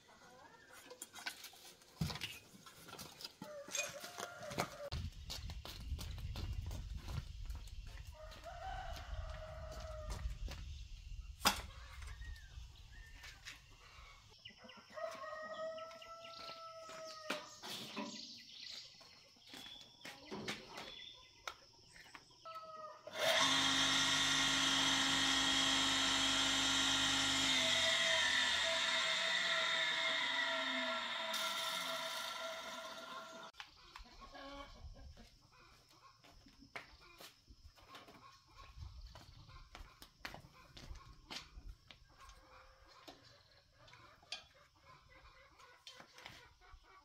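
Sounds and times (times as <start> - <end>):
rooster crowing and clucking: 3.4 - 5.0, 8.0 - 10.6, 14.6 - 17.6, 22.4 - 33.5
electric motor humming: 23.1 - 33.5.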